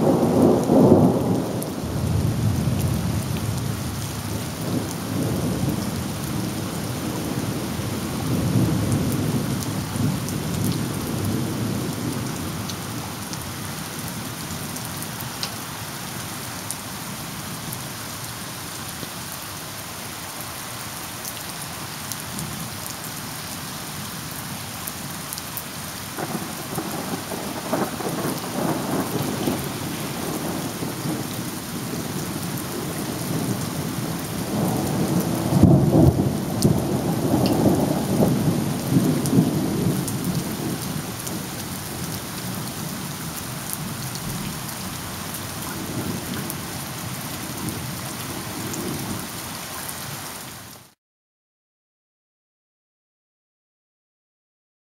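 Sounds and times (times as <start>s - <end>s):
rolling thunder: 0.0s - 12.6s, 26.2s - 42.2s
heavy rain: 0.0s - 51.0s.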